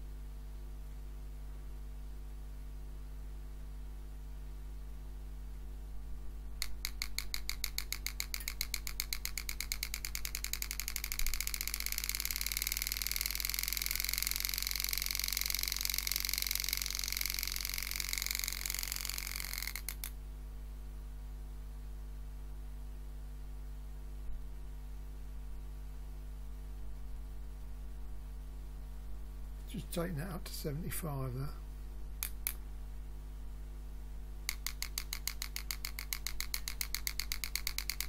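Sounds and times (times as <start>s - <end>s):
electrical hum: 0.0s - 38.0s
engraving tool buzzing on steel: 6.8s - 20.0s.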